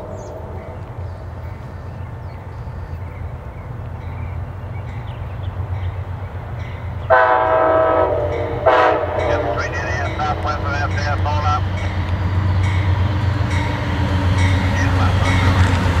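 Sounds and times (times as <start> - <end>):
train air horn chord: 0.0 - 1.1, 7.1 - 10.7
diesel locomotive engine rumble: 0.0 - 16.0.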